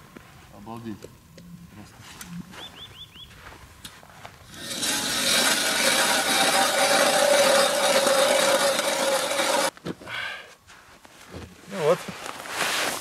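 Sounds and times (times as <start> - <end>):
ice auger grinding through ice: 4.5 - 9.7.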